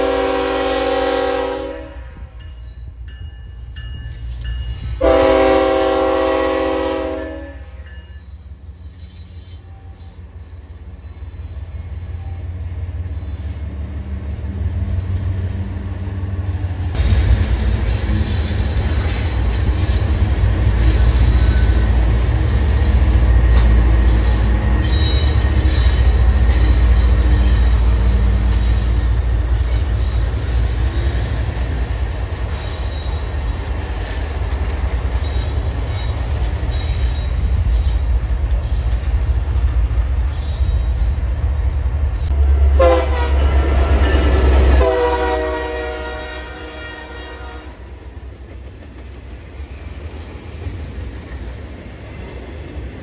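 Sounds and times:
locomotive horn blasts: 0:00.0 - 0:02.3, 0:05.0 - 0:07.9, 0:42.3 - 0:48.0
freight train rumble: 0:00.0 - 0:53.0
high wheel squeal: 0:08.3 - 0:16.2, 0:17.8 - 0:33.5, 0:34.1 - 0:38.0.

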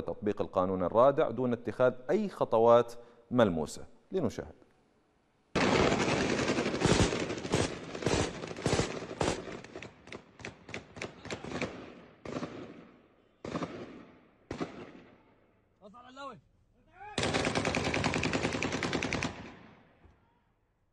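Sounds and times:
gunshots: 0:05.6 - 0:15.2, 0:17.2 - 0:19.8.

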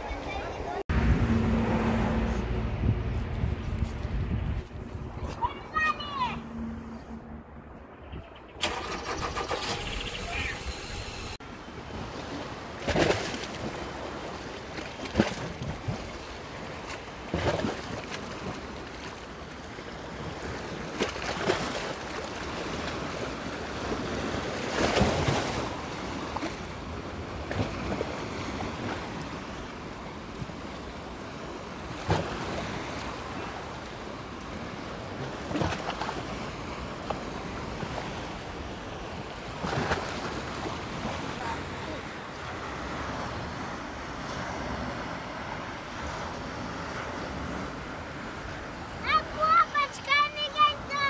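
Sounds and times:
wind on microphone: 0:00.9 - 0:05.5
waves breaking on a beach: 0:05.0 - 0:06.7, 0:09.2 - 0:51.0.

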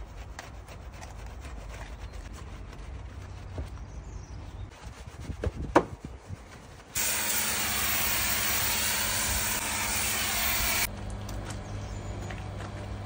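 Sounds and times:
hand scrubbing: 0:00.0 - 0:04.0
pressure washer spray hissing: 0:07.0 - 0:10.9
pressure washer pump hum: 0:07.0 - 0:13.0.

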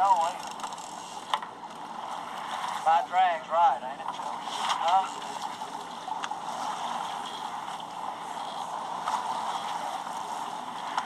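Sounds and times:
wind: 0:00.0 - 0:11.0
water rushing: 0:01.2 - 0:11.0.

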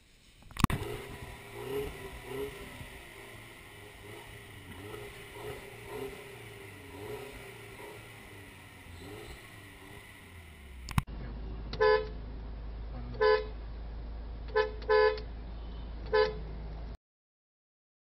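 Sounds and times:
car engine idling: 0:00.1 - 0:12.9
car horn honks: 0:11.8 - 0:12.2, 0:13.2 - 0:13.6, 0:14.5 - 0:15.3, 0:16.1 - 0:16.4.

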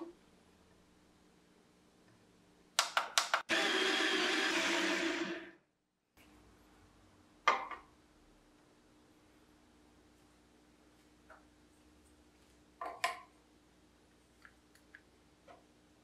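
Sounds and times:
coffee grinder running: 0:03.5 - 0:05.6.

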